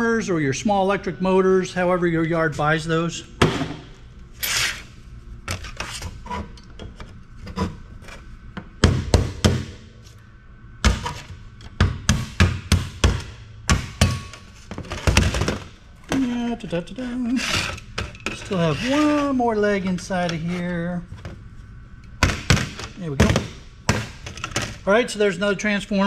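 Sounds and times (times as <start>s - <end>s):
metal scraping: 17.2s - 20.9s.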